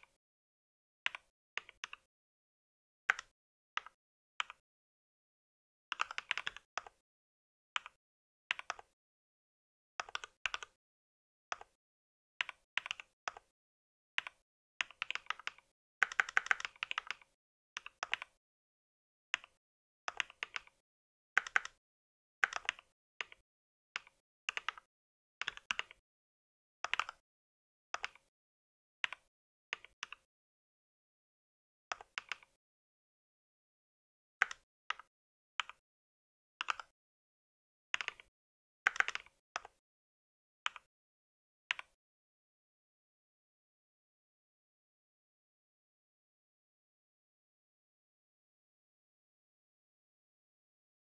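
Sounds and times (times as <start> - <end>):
mechanical keyboard typing: 5.9 - 7.0, 10.0 - 10.8, 14.2 - 18.4, 20.1 - 20.8, 21.4 - 21.8, 22.4 - 23.4, 24.0 - 26.0, 26.9 - 27.2, 36.6 - 36.9, 38.0 - 38.3, 38.9 - 39.8.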